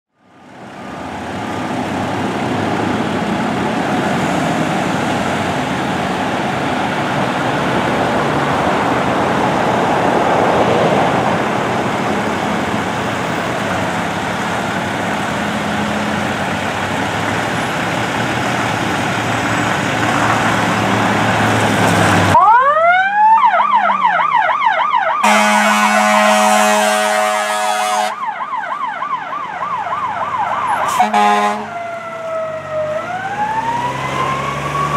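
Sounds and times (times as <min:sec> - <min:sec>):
fire engines running: 0:00.1 - 0:34.9
siren wailing and yelping: 0:22.4 - 0:25.8.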